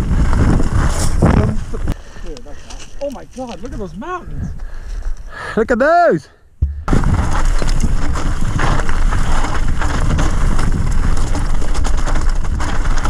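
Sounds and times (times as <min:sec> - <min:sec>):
bike tyres rolling over gravel: 0:00.0 - 0:04.1, 0:06.9 - 0:13.0
wind buffeting microphone: 0:03.4 - 0:05.2, 0:06.6 - 0:13.0.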